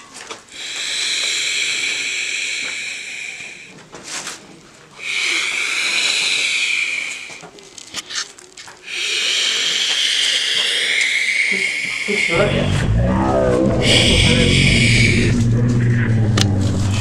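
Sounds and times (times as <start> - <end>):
eerie rasping breath-like hiss: 0.5 - 3.8, 5.0 - 7.6, 8.8 - 17.0.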